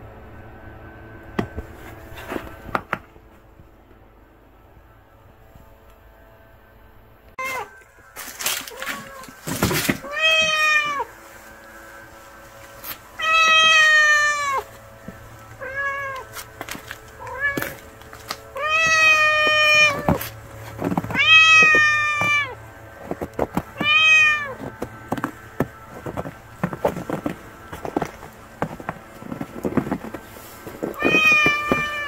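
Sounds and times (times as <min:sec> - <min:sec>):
cat meowing: 0:07.4 - 0:07.8, 0:08.7 - 0:09.4, 0:10.0 - 0:11.1, 0:13.2 - 0:14.7, 0:15.6 - 0:16.4, 0:17.2 - 0:17.8, 0:18.6 - 0:20.3, 0:21.1 - 0:22.6, 0:23.8 - 0:24.6, 0:30.9 - 0:32.0
faint taps and scuffs: 0:16.2 - 0:32.0.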